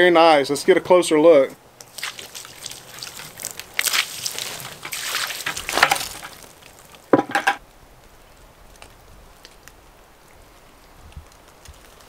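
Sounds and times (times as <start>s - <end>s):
faint water drips: 1.6s - 7.1s
water splashing onto wooden planks: 1.7s - 7.6s.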